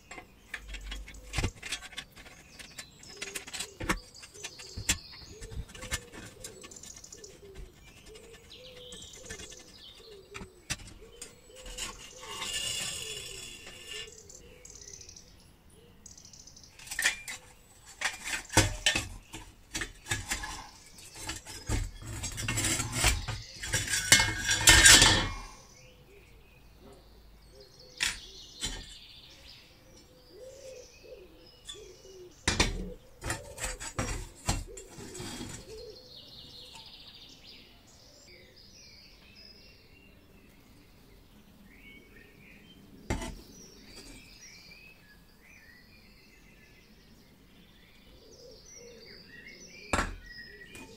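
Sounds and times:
metal parts knocking when set down: 0.0s - 7.6s, 16.8s - 25.6s, 28.0s - 29.0s, 32.5s - 35.8s, 43.1s - 43.4s, 50.0s - 50.9s
sheet metal parts clinking and scraping: 0.0s - 14.4s, 16.8s - 25.6s, 28.0s - 29.0s, 32.5s - 35.9s, 43.1s - 44.3s, 50.0s - 50.9s.

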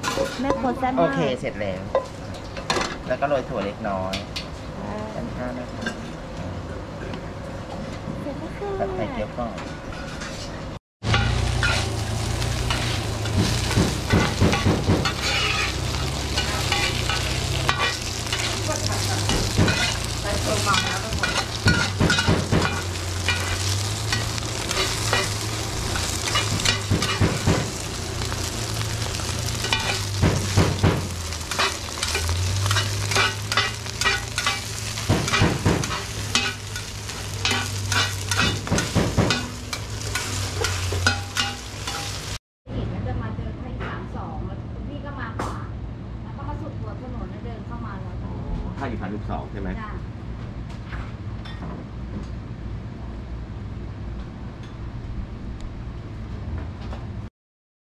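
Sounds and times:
metal utensils scraping a pan: 0.0s - 0.8s, 9.6s - 12.0s, 12.6s - 42.3s
batter sizzling in hot oil: 11.0s - 42.4s.

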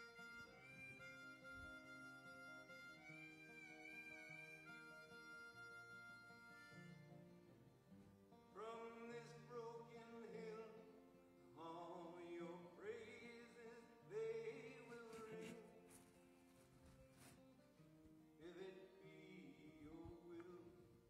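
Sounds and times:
acoustic guitar: 0.0s - 21.0s
man singing: 8.6s - 11.0s, 11.6s - 15.9s, 18.4s - 21.0s.

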